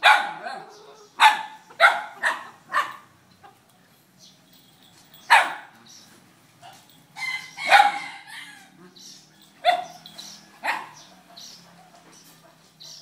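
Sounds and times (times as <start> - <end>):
dog barking: 0.0 - 3.1, 5.3 - 5.7, 7.7 - 8.2, 9.6 - 11.1.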